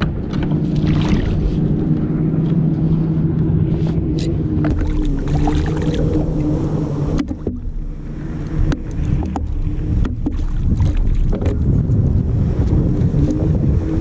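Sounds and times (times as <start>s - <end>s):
low hum: 0.0s - 14.0s
wind and water noise: 0.0s - 14.0s
fish splashing: 0.7s - 1.6s, 4.6s - 11.4s
knocks against kayak hull: 8.7s - 11.7s.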